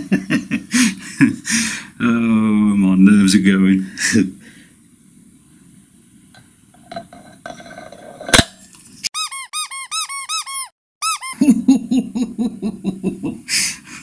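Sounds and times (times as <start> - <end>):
high squeaks rising and falling: 9.1 - 11.4.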